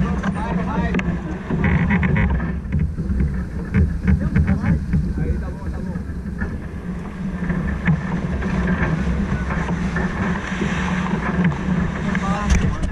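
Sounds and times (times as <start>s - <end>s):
water rushing along hull: 0.0s - 12.9s
wind buffeting microphone: 0.0s - 12.9s.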